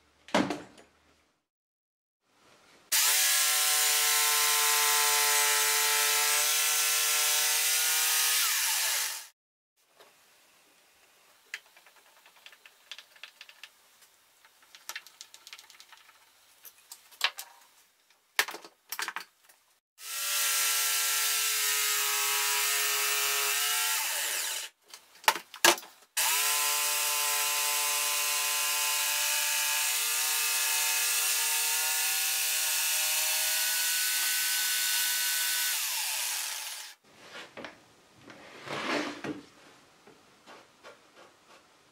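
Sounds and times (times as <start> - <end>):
jigsaw cutting wood: 2.9 - 9.4, 20.0 - 24.8, 26.2 - 37.0
small clicks and knocks: 11.5 - 19.6.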